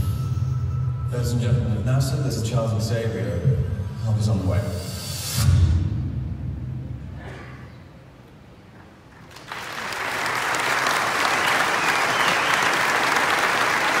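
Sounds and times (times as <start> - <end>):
audience applause: 9.2 - 14.0.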